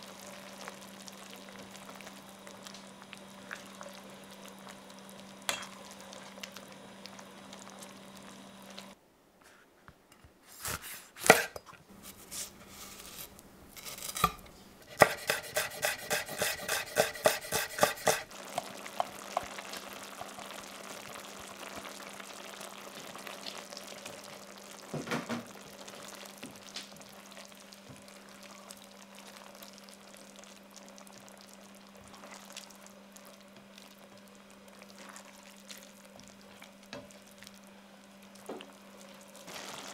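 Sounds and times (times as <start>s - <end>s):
food simmering in frying pan: 0.0s - 9.0s, 15.1s - 39.9s
spatula scraping pan: 10.5s - 18.3s.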